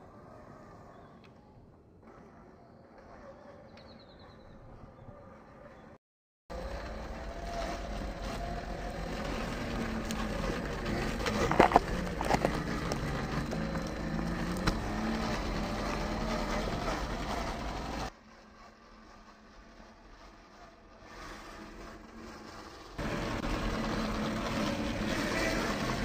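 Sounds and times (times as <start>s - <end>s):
rc car electric motor whining: 6.5s - 26.0s.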